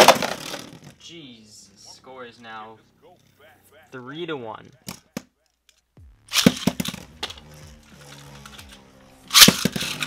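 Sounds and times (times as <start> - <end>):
spinning tops clashing with plastic cracks: 6.3 - 10.0
spinning tops whirring: 6.3 - 10.0.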